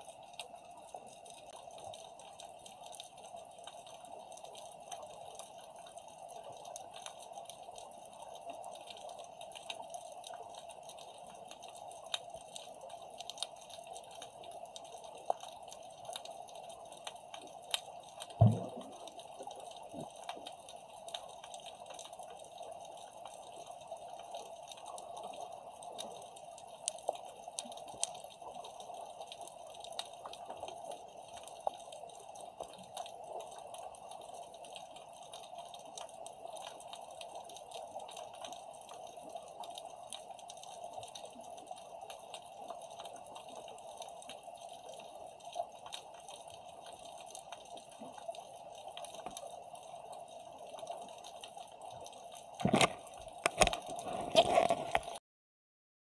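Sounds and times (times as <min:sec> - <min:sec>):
faint crackling clicks: 0:00.0 - 0:55.2
steady underwater hiss: 0:00.0 - 0:55.2
loud dull thud: 0:18.4 - 0:18.8.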